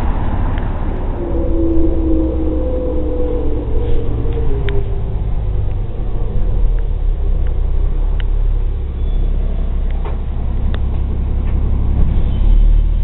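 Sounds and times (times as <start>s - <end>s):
bus engine and road noise: 0.0s - 13.0s.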